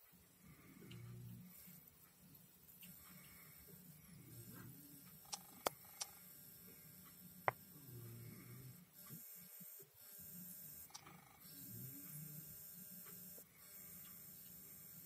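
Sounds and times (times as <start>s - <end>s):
faint low hum: 0.0s - 15.0s
sharp clicks: 10.9s - 11.2s.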